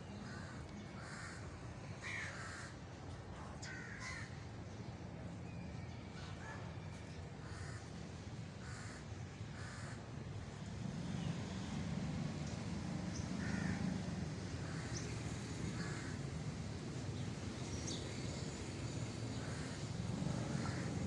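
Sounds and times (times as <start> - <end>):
crows cawing: 0.3 - 1.4, 2.0 - 2.7, 3.6 - 4.4, 8.6 - 10.0, 13.4 - 13.9, 15.7 - 16.2, 19.3 - 19.8, 20.5 - 20.9.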